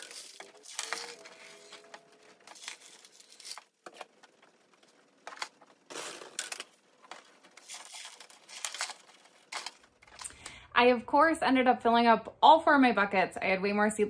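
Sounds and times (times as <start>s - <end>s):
bag crinkling and rustling: 0.0s - 10.3s
clay pebbles rattling: 0.0s - 10.3s.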